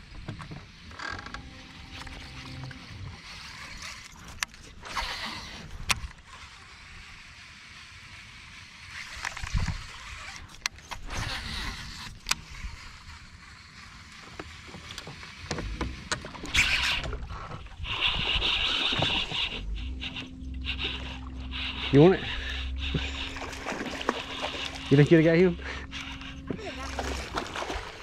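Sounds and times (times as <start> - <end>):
fishing reel winding: 1.8 - 14.3, 16.4 - 17.2, 17.8 - 26.4
sharp reel clicks: 8.8 - 17.2
rod and line swishing: 16.4 - 25.3.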